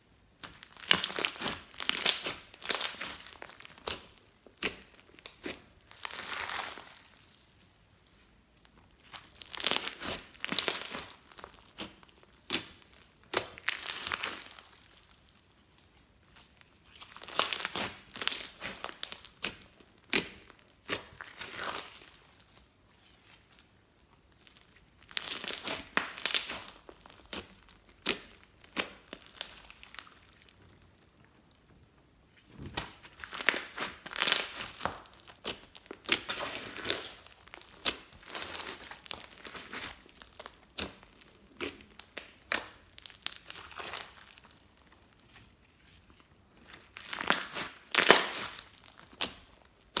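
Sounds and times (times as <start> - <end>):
slime squelching and clicking: 32.6 - 45.0.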